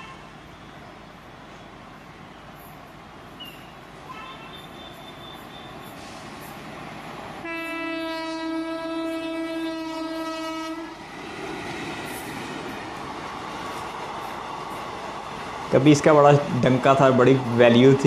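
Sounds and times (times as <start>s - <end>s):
passing train running noise: 0.0s - 18.0s
train horn blast: 7.4s - 11.0s.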